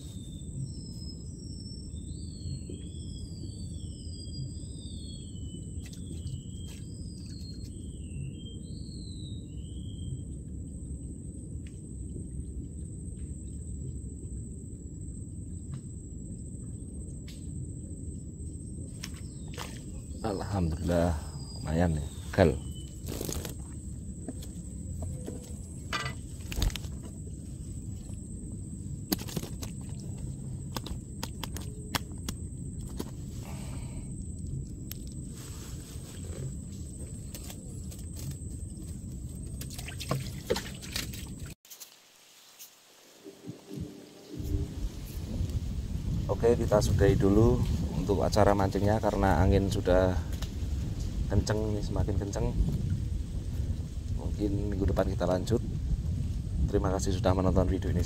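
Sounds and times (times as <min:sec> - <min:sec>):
wind rumbling on microphone: 0:00.0 - 0:41.6, 0:43.2 - 0:58.0
wind buffeting microphone: 0:43.4 - 0:58.0.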